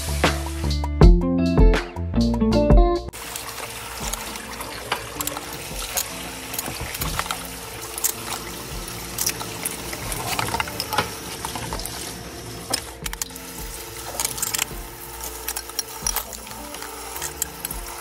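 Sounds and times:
tap running into sink: 3.4 - 14.9
dishes clinking: 9.2 - 12.1.

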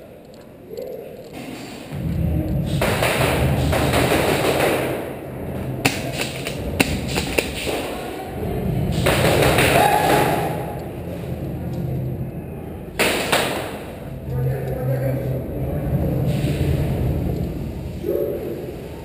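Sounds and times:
sharp cracks: 0.2 - 8.1, 8.9 - 10.9, 13.0 - 14.0.

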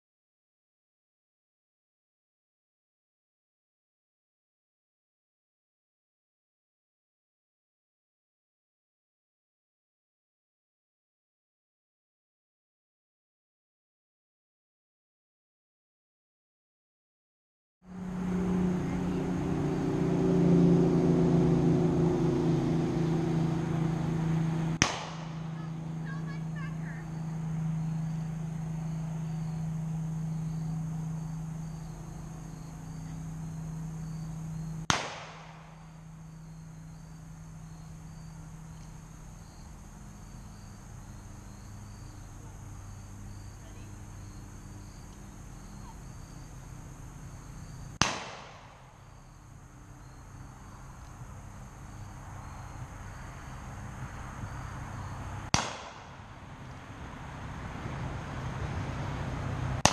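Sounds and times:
insect chirping: 23.2 - 55.5
revolver shots with echo: 24.8 - 25.6, 34.8 - 35.9, 48.0 - 48.8, 55.5 - 56.2.

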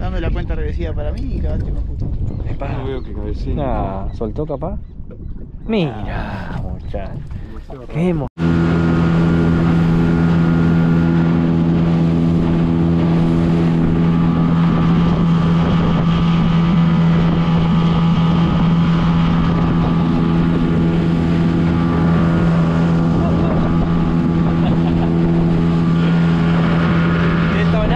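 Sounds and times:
outboard motor running: 6.1 - 27.9.

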